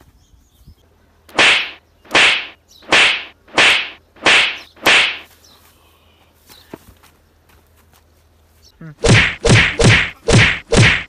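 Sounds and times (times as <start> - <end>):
whip-crack swishes: 1.3 - 5.3, 9.0 - 11.0.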